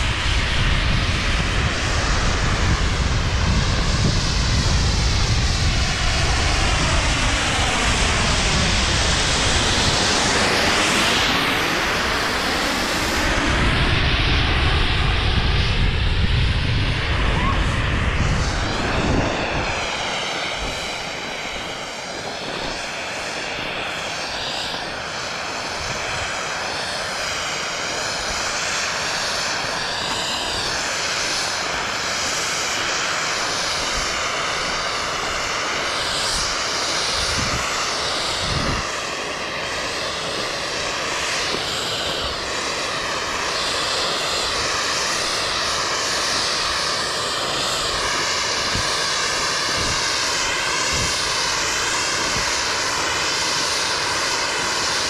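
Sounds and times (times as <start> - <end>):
wind on microphone: 0.0 - 55.0.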